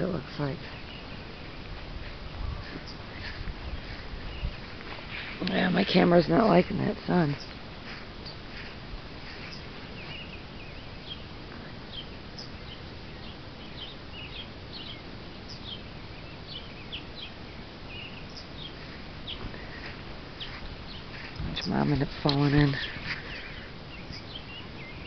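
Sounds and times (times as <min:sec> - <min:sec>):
birds chirping: 0:00.0 - 0:25.0
outdoor background hiss: 0:00.0 - 0:25.0.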